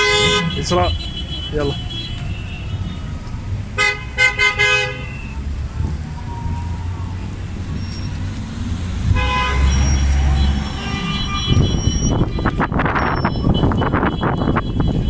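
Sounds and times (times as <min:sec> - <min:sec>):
car horns honking: 0:00.0 - 0:05.5, 0:09.0 - 0:15.0
low rumble of vehicles: 0:00.0 - 0:15.0.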